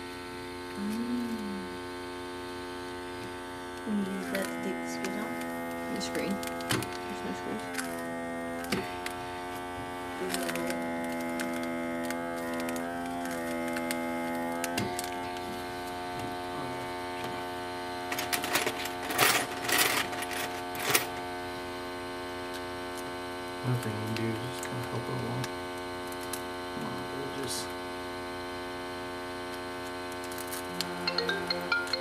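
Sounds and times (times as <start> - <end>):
electrical hum: 0.0 - 32.0
small parts clicking and rattling: 18.1 - 21.1.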